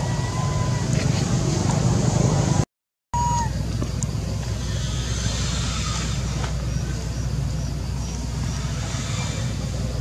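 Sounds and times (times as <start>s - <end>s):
low background rumble: 3.2s - 10.0s.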